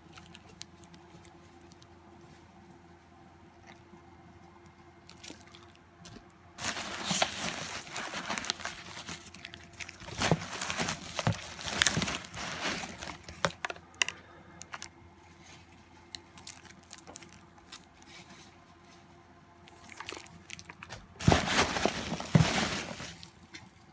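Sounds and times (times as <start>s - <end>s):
plastic and bubble wrap crinkling: 6.6s - 18.3s, 19.7s - 23.5s.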